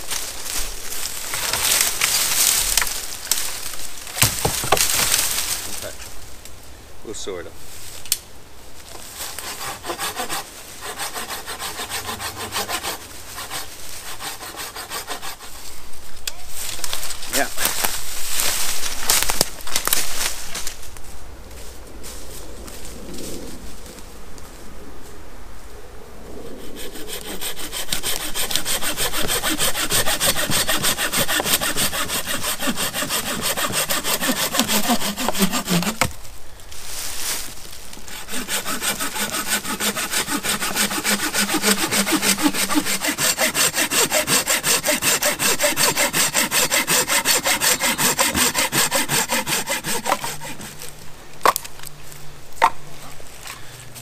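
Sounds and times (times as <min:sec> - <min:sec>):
hand saw cutting wood: 0:09.0 - 0:15.7, 0:26.6 - 0:36.2, 0:38.1 - 0:50.9.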